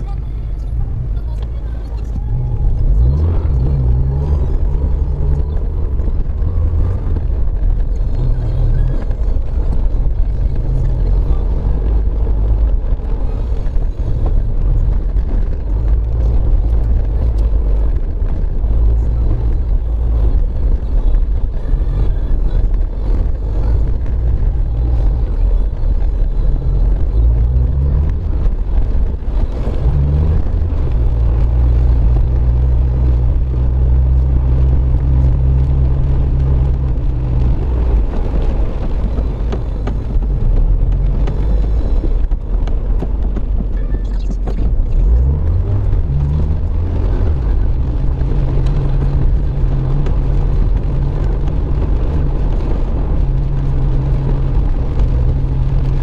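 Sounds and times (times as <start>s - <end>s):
car engine hum: 0.0s - 56.0s.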